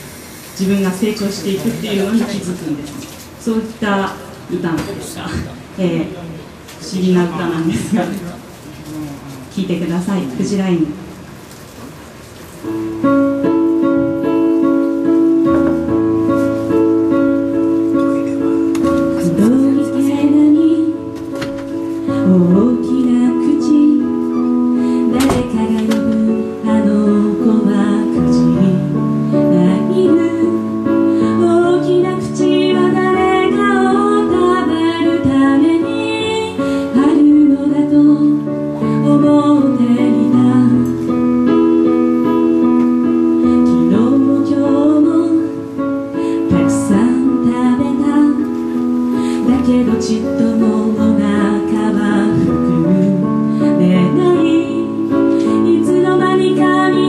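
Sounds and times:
electronic keyboard chords: 12.7s - 57.0s
woman singing into microphone: 18.9s - 41.2s, 43.2s - 57.0s.

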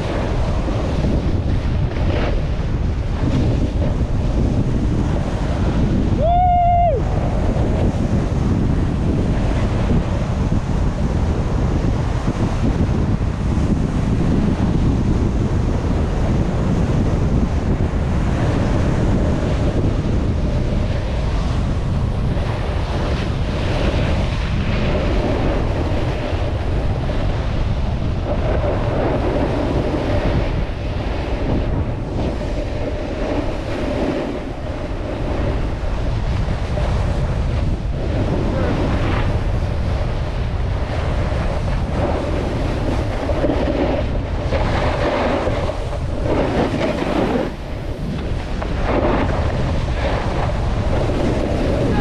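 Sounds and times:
wind buffeting microphone: 0.0s - 52.0s
skis sliding on packed snow: 28.3s - 52.0s.

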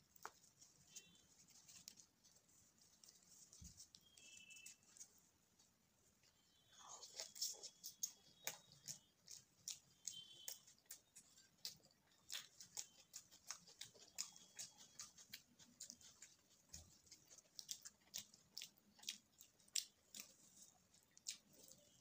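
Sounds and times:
chewing and mouth clicks: 6.2s - 22.0s.

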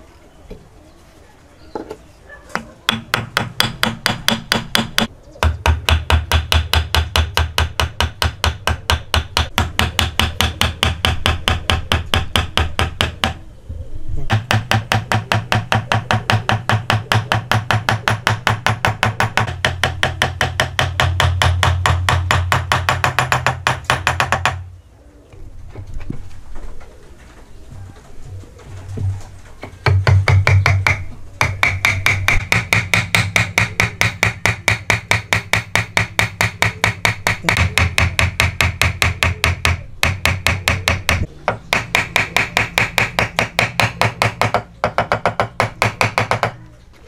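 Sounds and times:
rapid hammer blows on wood: 2.9s - 13.4s, 14.3s - 24.6s, 29.8s - 46.6s.

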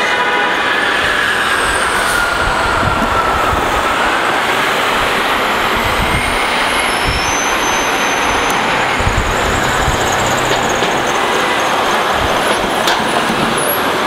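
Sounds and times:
street traffic noise: 0.0s - 14.0s
diesel bus driving away: 4.1s - 14.0s.

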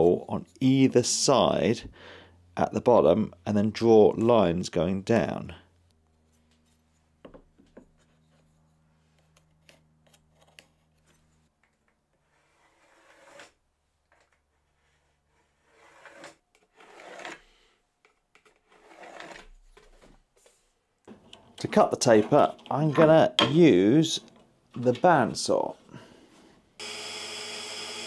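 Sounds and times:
pencil scratching along a ruler: 12.2s - 13.6s, 14.5s - 17.4s.

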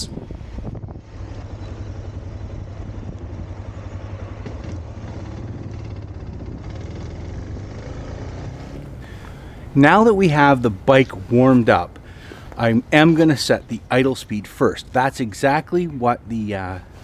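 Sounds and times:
motorcycle engine running: 0.6s - 9.6s.

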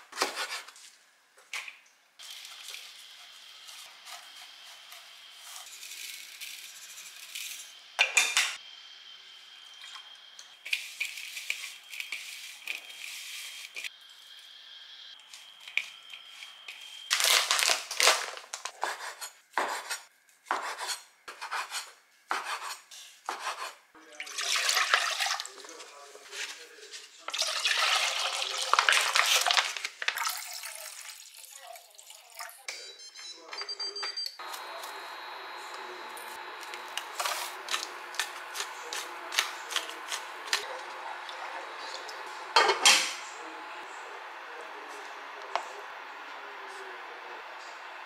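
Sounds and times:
knife chopping on wooden board: 18.8s - 23.7s.

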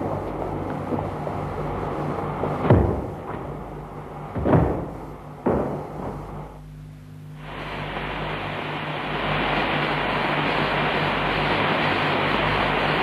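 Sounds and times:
steady hiss: 0.0s - 13.0s
carriage doors slamming: 4.4s - 6.4s.

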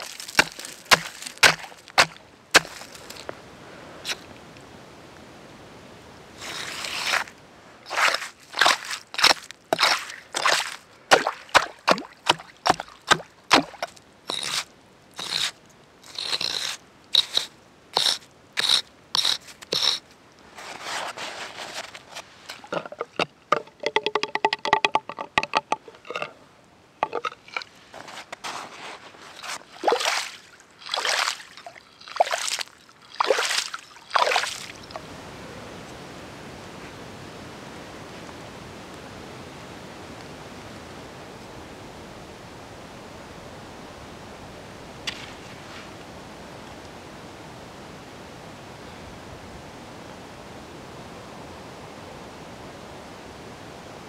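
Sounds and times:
axe chopping ice: 0.0s - 3.0s, 8.0s - 14.6s
ice scraping: 0.0s - 3.3s, 6.4s - 11.7s, 12.3s - 23.6s, 27.0s - 34.8s
water sloshing: 0.0s - 3.3s, 6.4s - 20.0s, 21.7s - 26.4s, 27.0s - 35.0s.

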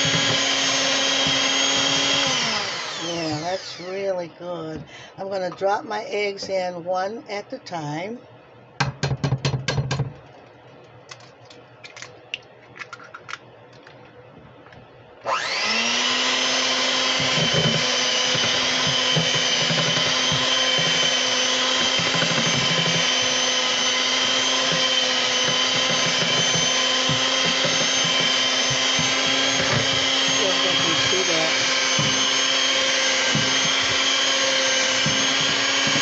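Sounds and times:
electric hand mixer whining: 0.0s - 4.2s, 15.2s - 36.0s.

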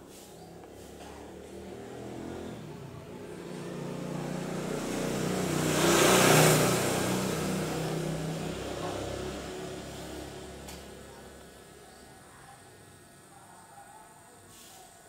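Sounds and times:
motor vehicle passing: 0.1s - 11.6s.

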